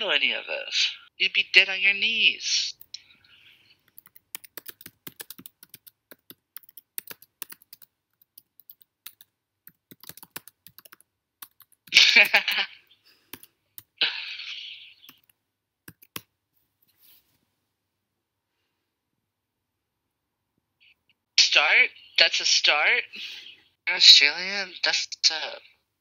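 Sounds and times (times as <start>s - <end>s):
computer keyboard typing: 3.8s - 12.6s, 13.2s - 14.0s, 15.1s - 16.3s.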